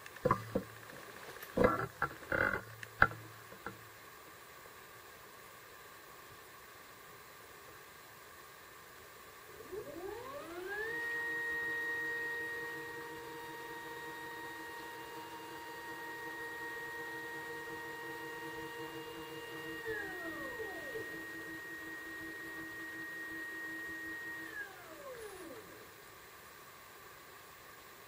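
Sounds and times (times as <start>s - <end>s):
motors humming while slewing: 9.4s - 26.4s.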